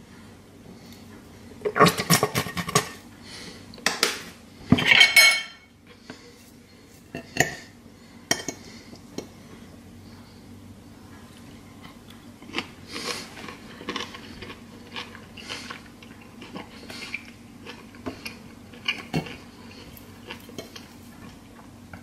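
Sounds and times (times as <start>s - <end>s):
cutlery clattering on plate: 4.8s - 5.6s.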